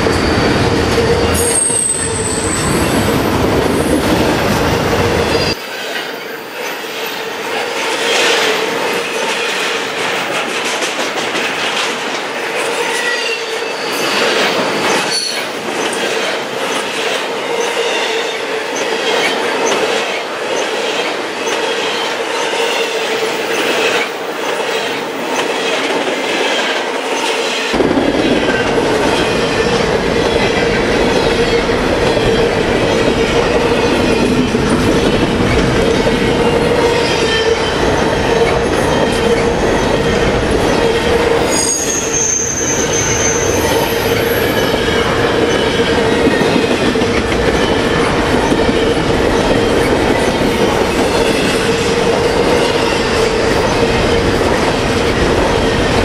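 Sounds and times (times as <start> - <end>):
high wheel squeals: 0.0 - 3.2, 4.8 - 5.7, 36.9 - 45.7
train wheels rumbling on rail: 0.0 - 56.0.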